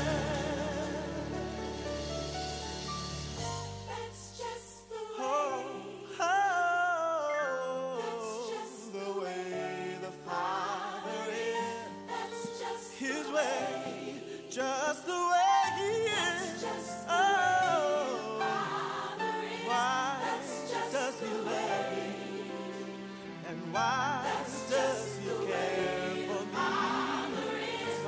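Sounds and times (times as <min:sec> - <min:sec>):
sustained instrumental accompaniment: 0:00.0 - 0:05.0, 0:17.9 - 0:28.0
gospel singing with backing voices: 0:00.0 - 0:28.0.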